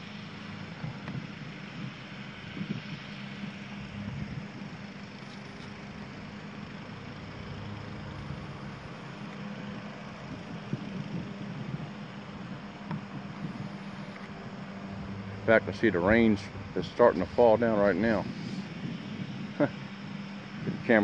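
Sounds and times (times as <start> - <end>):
low hum: 0.0 - 21.0
even rushing noise: 9.8 - 21.0.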